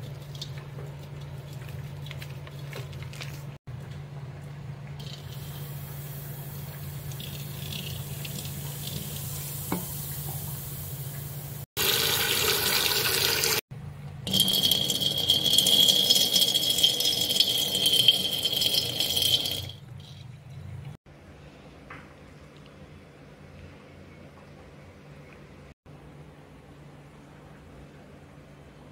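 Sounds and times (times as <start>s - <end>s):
tap water running into sink: 5.0s - 13.6s, 14.3s - 19.8s
low steady hum: 13.7s - 28.9s.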